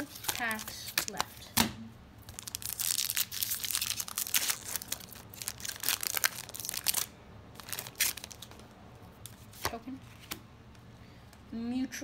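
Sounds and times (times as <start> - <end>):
foil wrapper crinkling: 2.3 - 8.6.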